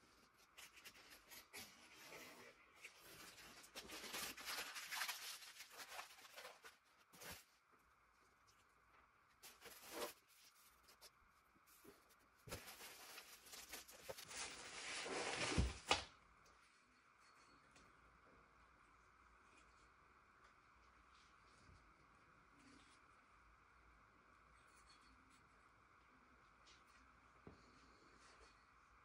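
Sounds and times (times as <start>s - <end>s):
paper and plastic wrapping crinkling: 2.9s - 7.5s, 9.4s - 11.1s, 11.7s - 16.0s.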